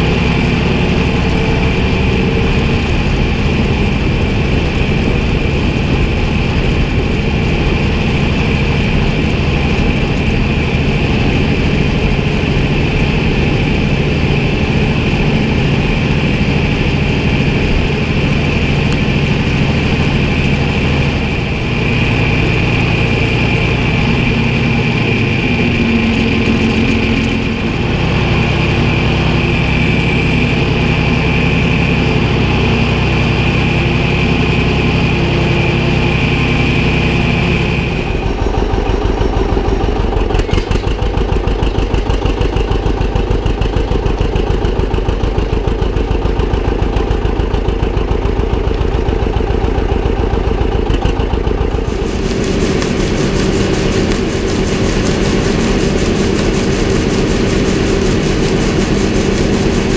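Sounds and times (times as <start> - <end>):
steady high whine: 0.0 - 32.6, 51.7 - 59.9
tractor engine idling: 0.0 - 59.9
tractor engine running under load: 0.0 - 59.9.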